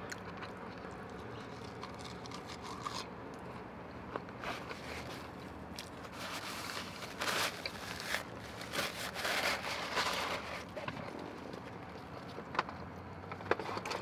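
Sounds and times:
chewing and sucking fingers: 0.0s - 6.1s
paper napkin rustling: 6.0s - 10.7s.

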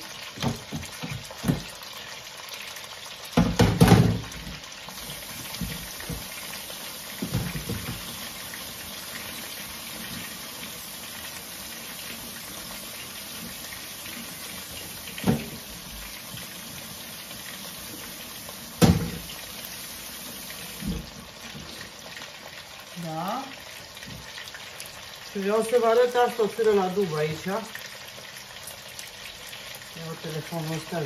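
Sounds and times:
tap running into sink: 0.4s - 1.7s, 3.4s - 6.5s, 7.2s - 8.3s, 14.6s - 16.5s, 18.8s - 19.4s, 20.6s - 21.8s.

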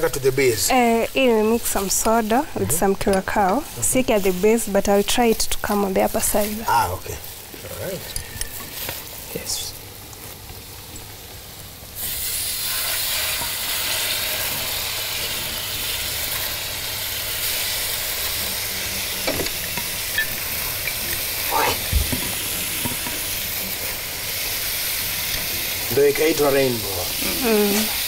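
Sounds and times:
food sizzling in a pan: 0.0s - 28.0s.

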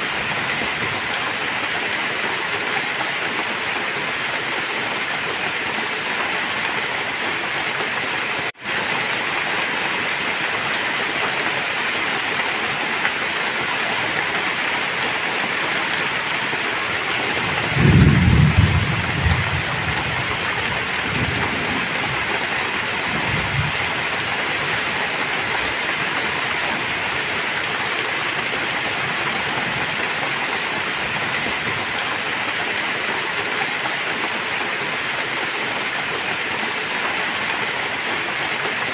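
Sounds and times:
heavy rain falling: 0.0s - 38.9s
thunder rumbling: 17.3s - 22.4s.

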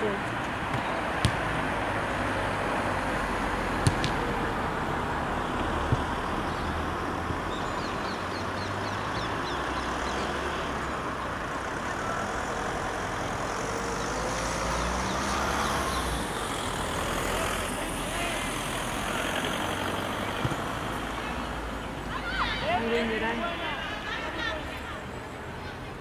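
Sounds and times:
road traffic hum: 0.0s - 26.0s.

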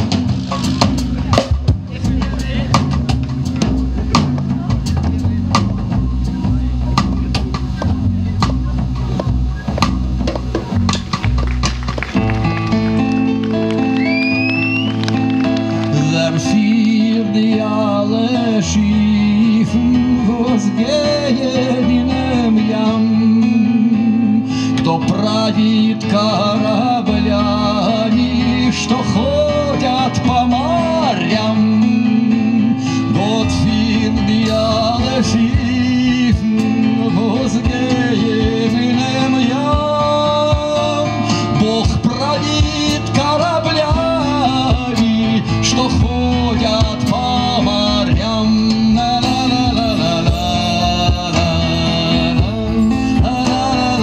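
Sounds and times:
cajon: 0.0s - 16.9s, 33.2s - 54.0s
electric keyboard: 0.0s - 54.0s
plucked double bass: 0.0s - 54.0s.

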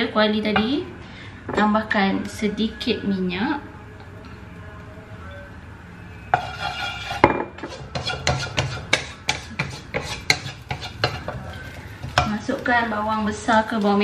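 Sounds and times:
wooden spatula scraping a wok: 6.3s - 12.6s.

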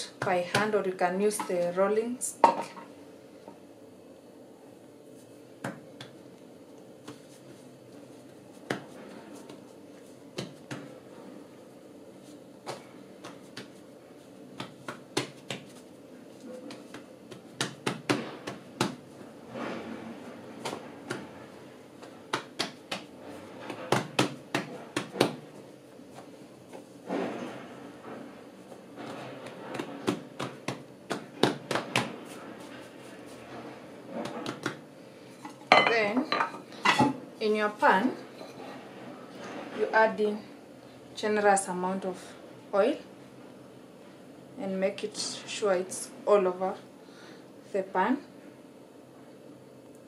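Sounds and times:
hands slapping dough: 0.0s - 0.8s, 5.6s - 6.3s, 7.0s - 11.1s, 12.2s - 19.4s, 20.5s - 26.9s, 28.7s - 32.7s, 34.2s - 34.9s
dough rubbing: 6.9s - 34.8s.

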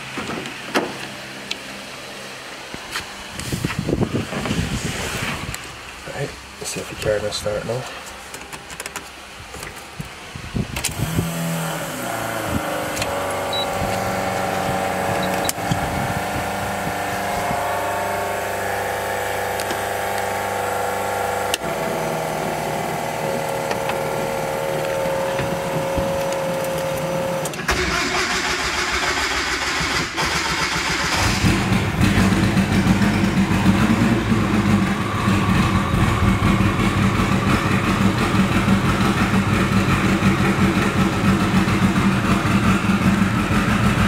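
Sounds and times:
engine cranking and idling: 10.7s - 44.0s.

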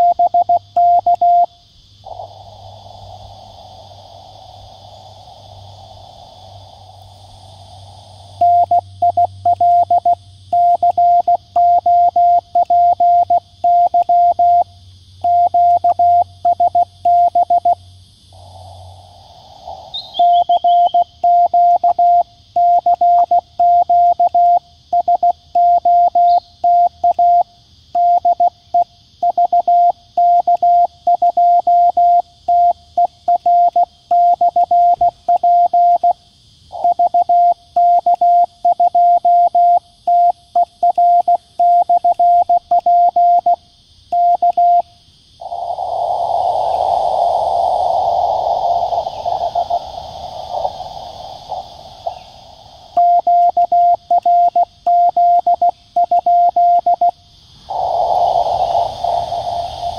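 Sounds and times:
morse code tone: 0.0s - 1.5s, 53.0s - 57.1s
receiver hiss: 0.0s - 59.9s.

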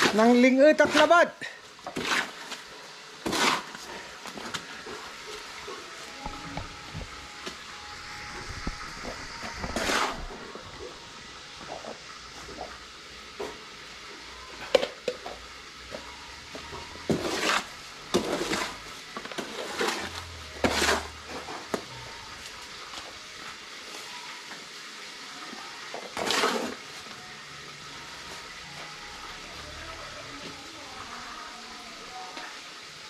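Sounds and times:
tools scraping: 5.3s - 10.4s, 17.1s - 21.7s.

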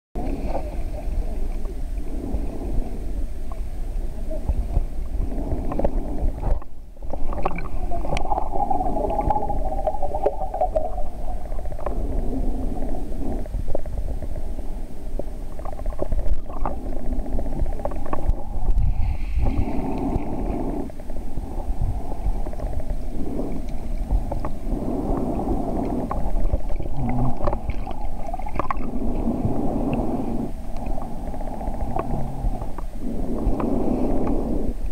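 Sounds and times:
underwater rumbling and gurgling: 0.2s - 34.9s
faint clicks: 22.4s - 24.6s.

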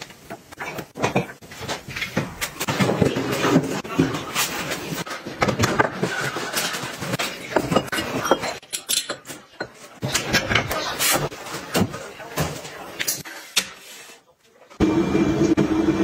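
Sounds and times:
bowls and spoon clinking on rack: 5.9s - 10.6s.

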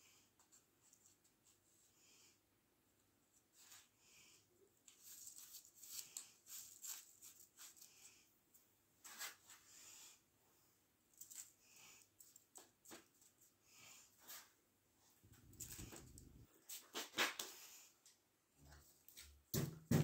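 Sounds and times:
thin plastic crinkling: 4.9s - 8.2s.

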